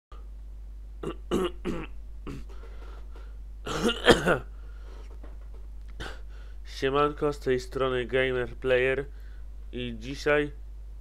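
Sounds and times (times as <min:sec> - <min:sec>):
low steady hum: 0:00.1 - 0:11.0
man clearing his throat: 0:01.0 - 0:02.6, 0:03.7 - 0:04.5, 0:06.0 - 0:06.3.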